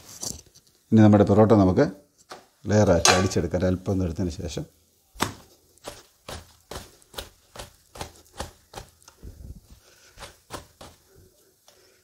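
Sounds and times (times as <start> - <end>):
hands slapping flatbread: 5.2 - 11.8.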